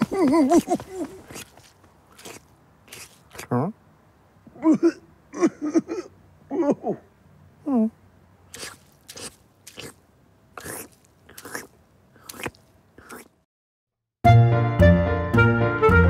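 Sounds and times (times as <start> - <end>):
cartoon chewing bites: 0.0 - 3.5, 8.5 - 10.0, 10.6 - 13.4
music: 14.2 - 16.0.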